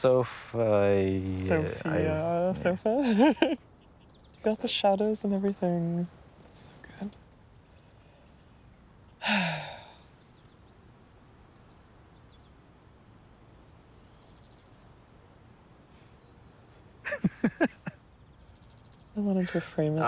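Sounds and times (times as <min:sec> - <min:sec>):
person sighing: 0:09.2 - 0:10.0.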